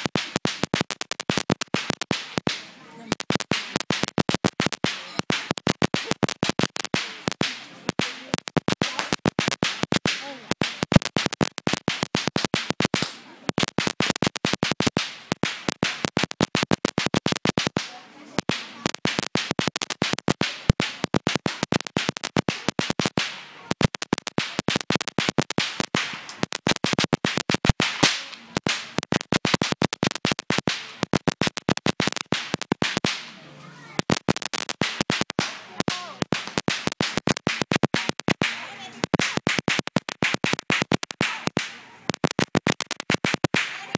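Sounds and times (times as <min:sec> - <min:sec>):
firecrackers crackling: 0:00.0 - 0:43.9.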